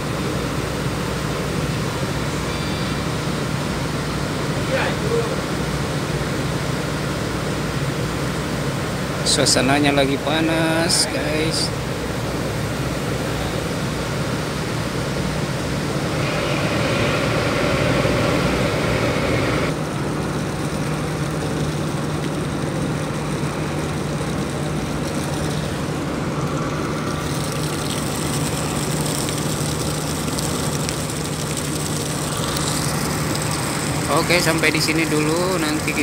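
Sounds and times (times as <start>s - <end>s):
ship engines droning: 0.0s - 36.0s
hiss: 15.8s - 19.7s.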